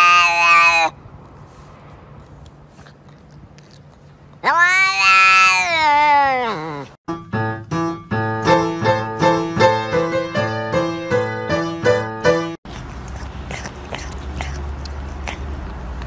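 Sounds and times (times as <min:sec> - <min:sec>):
cat meowing: 0:00.0 - 0:01.0, 0:04.4 - 0:07.0
light plucked instrumental music: 0:07.1 - 0:12.6.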